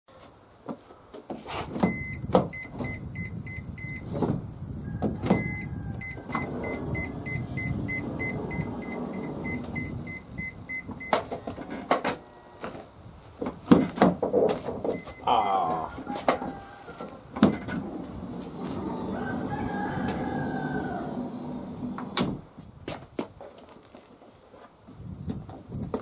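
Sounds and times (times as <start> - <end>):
door motor running: 17.8 - 22.4.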